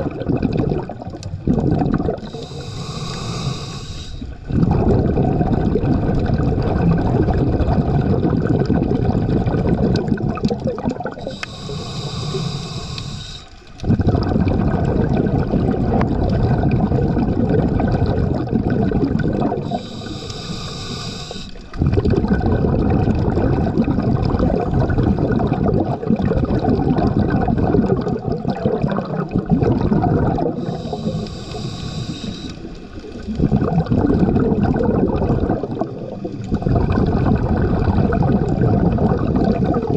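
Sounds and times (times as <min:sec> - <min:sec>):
underwater bubbling exhalations: 0:00.0 - 0:39.9
hissing regulator inhalation: 0:02.2 - 0:04.4, 0:11.1 - 0:13.6, 0:19.5 - 0:21.7, 0:30.4 - 0:33.0.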